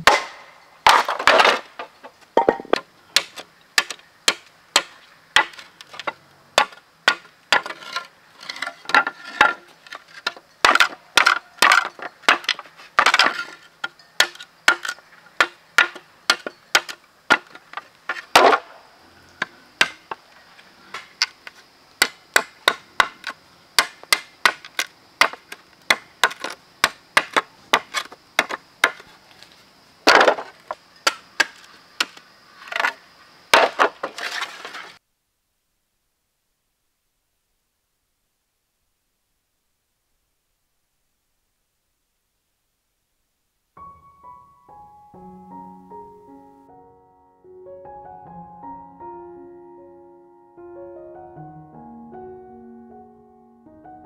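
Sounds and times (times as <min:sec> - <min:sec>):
machete chopping bamboo: 0:00.0 - 0:01.9, 0:02.6 - 0:13.6, 0:14.2 - 0:18.7, 0:19.4 - 0:20.2, 0:22.0 - 0:29.1, 0:30.0 - 0:34.3.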